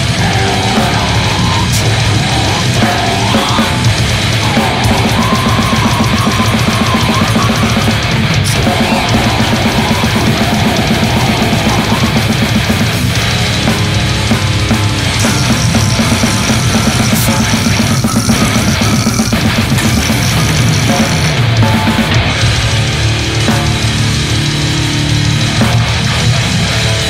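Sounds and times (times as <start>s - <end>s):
distorted electric guitars: 0.0s - 27.0s
fast dense drumming: 0.0s - 27.0s.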